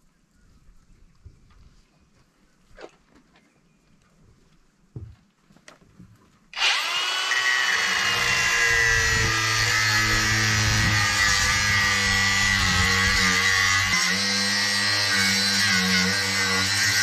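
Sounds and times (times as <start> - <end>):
angle grinder whining: 6.6 - 17.0.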